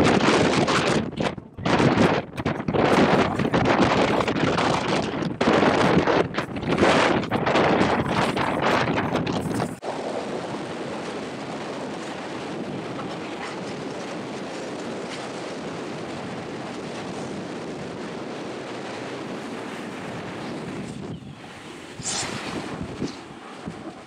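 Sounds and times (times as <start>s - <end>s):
wind rushing on microphone: 0.0s - 24.0s.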